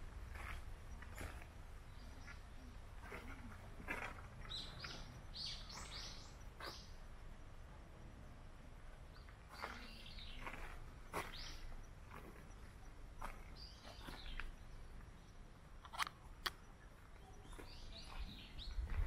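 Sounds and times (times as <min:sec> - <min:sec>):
birds calling: 0:04.4 - 0:07.0, 0:09.1 - 0:15.3.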